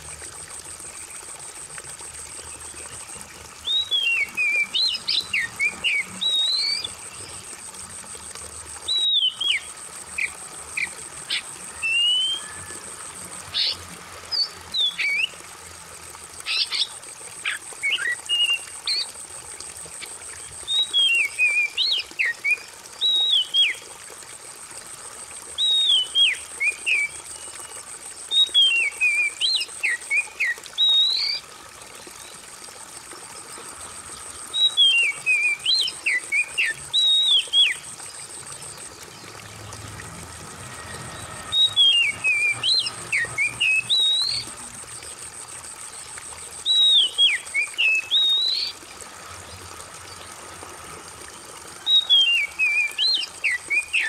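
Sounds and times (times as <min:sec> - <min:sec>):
water trickling: 0:00.0 - 0:54.0
bird singing whistled phrases: 0:03.6 - 0:06.9, 0:08.9 - 0:09.6, 0:11.7 - 0:12.7, 0:28.3 - 0:31.4, 0:41.5 - 0:44.5, 0:46.6 - 0:48.8, 0:51.8 - 0:54.0.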